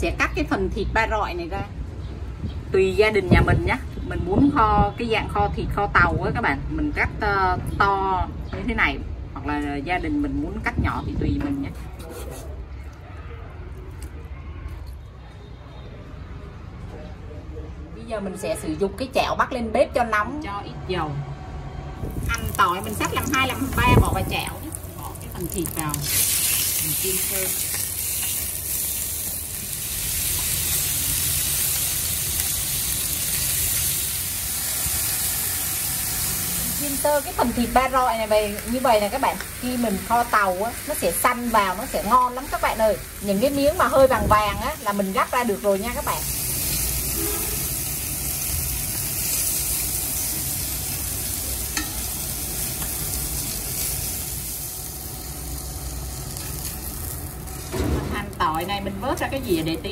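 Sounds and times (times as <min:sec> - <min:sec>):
meat sizzling in hot oil: 0:22.1 - 0:57.9.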